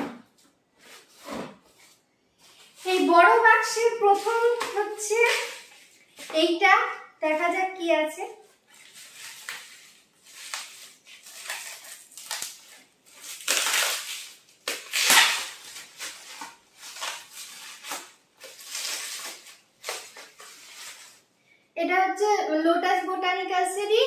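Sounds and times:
plastic wrapping crinkling: 2.4 - 6.4, 7.3 - 21.4.

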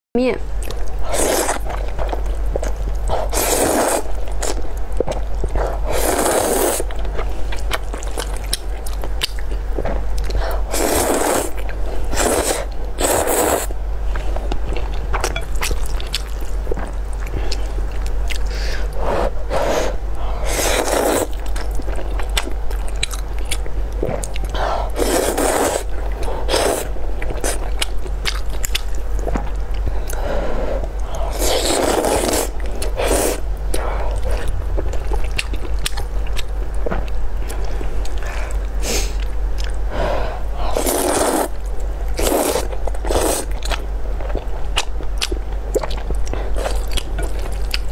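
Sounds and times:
steady low hum: 0.2 - 47.9
slurping noodles: 1.0 - 1.7, 3.2 - 4.6, 5.6 - 6.9, 10.7 - 13.7, 19.0 - 21.4, 25.0 - 27.6, 30.2 - 33.4, 40.6 - 41.6, 42.2 - 43.6
wet chewing: 20.6 - 30.2, 31.0 - 39.8, 40.7 - 47.9.

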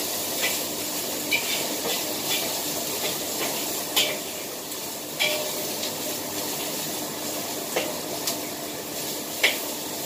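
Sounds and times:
food sizzling in a wok: 0.0 - 10.0
spatula clacking against a wok: 1.3 - 4.4, 5.2 - 5.6, 7.7 - 8.0, 9.4 - 9.7.

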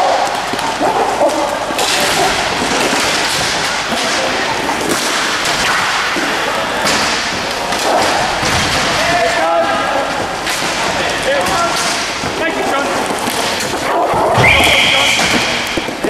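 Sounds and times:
sticks and puck hitting boards: 0.0 - 16.0
people shouting: 13.8 - 16.0.

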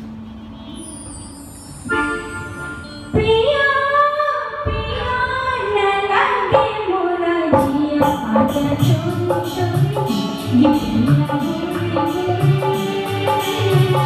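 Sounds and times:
woman singing into a microphone: 3.1 - 14.0.

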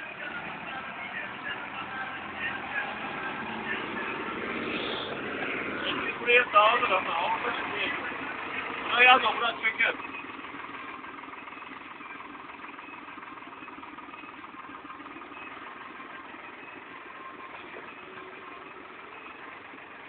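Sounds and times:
tractor diesel engine running: 0.0 - 20.0
blade scraping through soil: 4.7 - 5.2.

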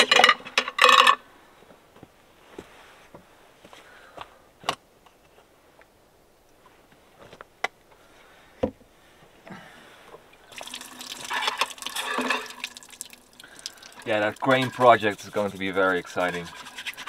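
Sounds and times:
water pouring into plastic basin: 10.5 - 14.8.

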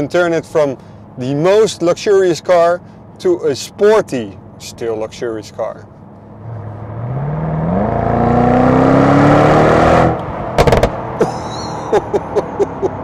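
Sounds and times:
engine accelerating hard: 6.4 - 13.0
exhaust cracks: 10.0 - 11.1.

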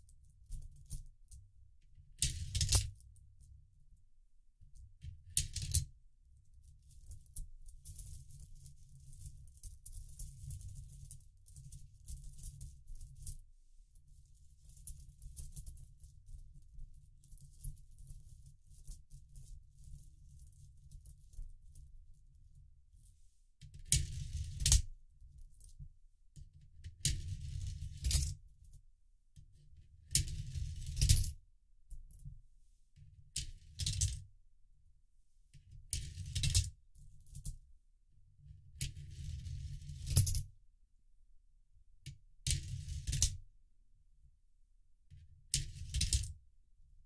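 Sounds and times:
coins shuffled on a towel: 2.2 - 3.0, 27.1 - 28.4, 35.9 - 37.6.

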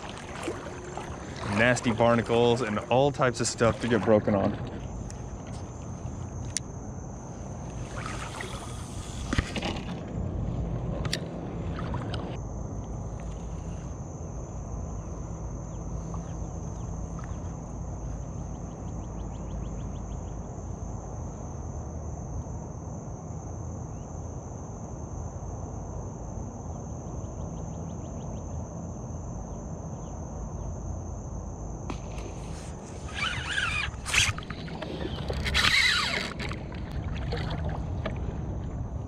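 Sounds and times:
high-pitched insect chorus: 0.0 - 9.9, 12.4 - 37.7
water noise: 0.0 - 12.4, 31.9 - 39.0
low wind: 0.0 - 39.0
rapid trilling ticks: 33.0 - 37.0.

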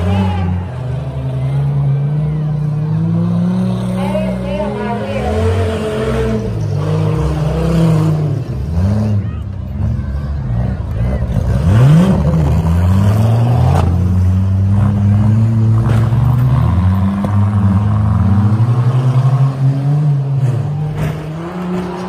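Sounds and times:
truck engines revving: 0.0 - 22.0
trucks crashing bangs: 15.6 - 17.6, 20.3 - 22.0.

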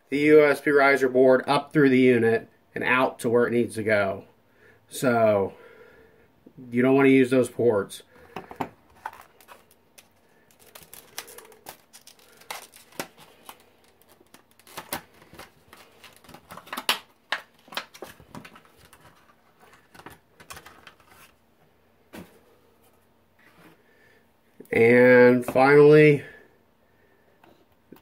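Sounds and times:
plastic items and packaging clicking: 8.3 - 21.4.

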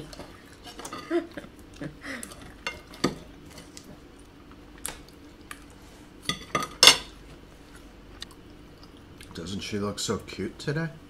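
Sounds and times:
cutlery clinking on plates: 6.3 - 7.1.

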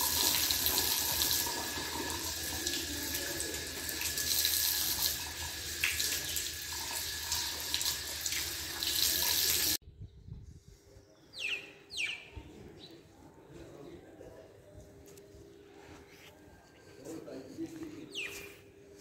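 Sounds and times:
water splashing into drain: 0.0 - 9.8.

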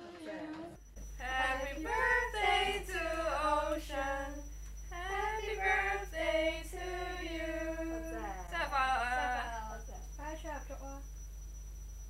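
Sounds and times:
girls singing unaccompanied: 0.0 - 9.6.

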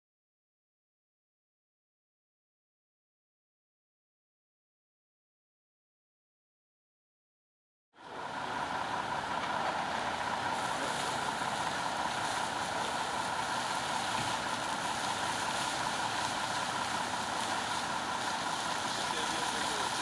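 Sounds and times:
truck engine running: 8.0 - 20.0
water jet rushing: 8.1 - 20.0.

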